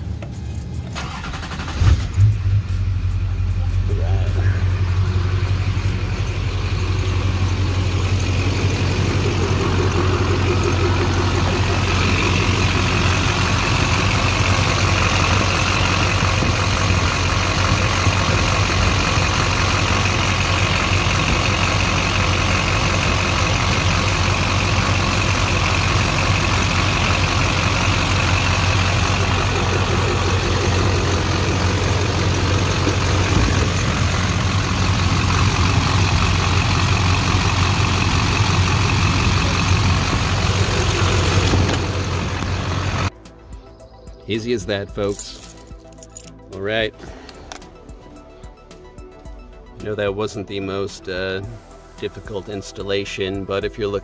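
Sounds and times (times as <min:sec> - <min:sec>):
diesel engine cranking and idling: 0:00.0 - 0:43.2
high engine whine: 0:00.0 - 0:43.4.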